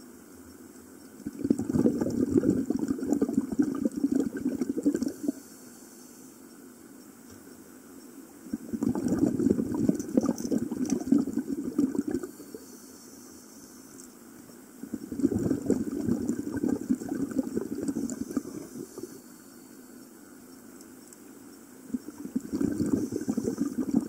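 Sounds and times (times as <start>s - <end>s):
scuba bubbles gurgling underwater: 1.2s - 5.4s, 8.4s - 12.6s, 14.8s - 19.2s, 21.9s - 24.0s.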